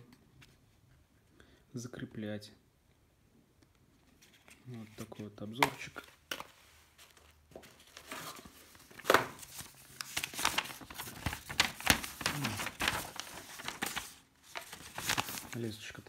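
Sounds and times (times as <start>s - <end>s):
bubble wrap and paper crinkling: 4.1s - 16.0s.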